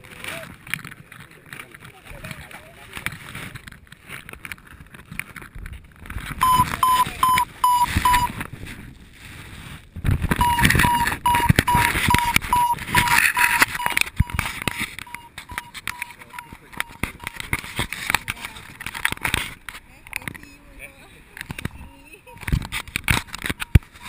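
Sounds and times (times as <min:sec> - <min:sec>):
variometer beeping: 0:06.4 - 0:08.4, 0:10.4 - 0:17.4
wind buffeting microphone: 0:07.5 - 0:15.1.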